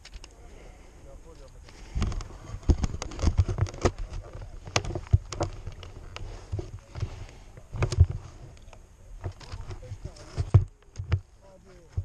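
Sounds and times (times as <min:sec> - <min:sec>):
camera handling knocks and thumps: 0:01.9 - 0:08.3, 0:09.2 - 0:12.0.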